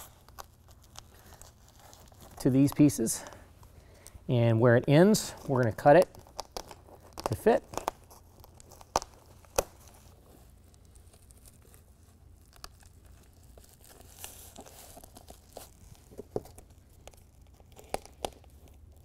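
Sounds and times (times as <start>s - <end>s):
hook-and-loop strips clicking and rustling: 0.0s - 3.4s
tape backing peeling: 0.0s - 4.2s, 5.0s - 19.0s.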